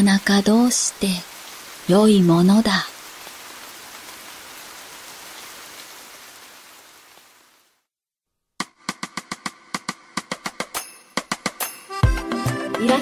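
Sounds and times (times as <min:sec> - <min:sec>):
steady rain patter: 0:00.0 - 0:07.9.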